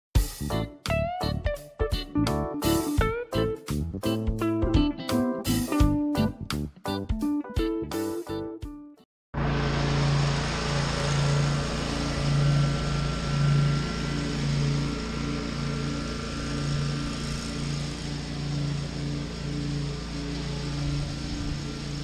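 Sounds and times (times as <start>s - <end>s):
riding lawn mower engine: 9.4s - 22.0s.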